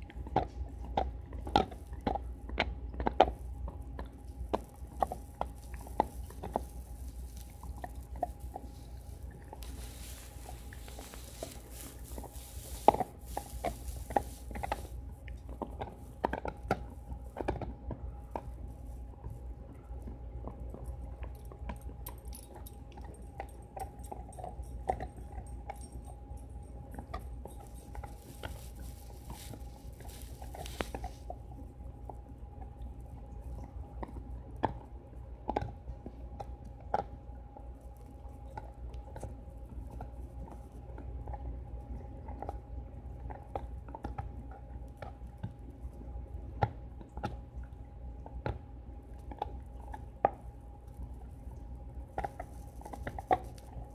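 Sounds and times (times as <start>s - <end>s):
faint steady hum: 0.0s - 53.9s
dog chewing hard bone: 26.9s - 31.4s.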